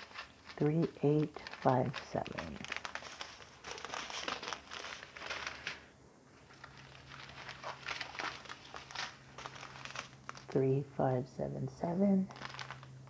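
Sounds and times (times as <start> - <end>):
plastic zip bags crinkling: 0.0 - 10.6, 12.3 - 13.0.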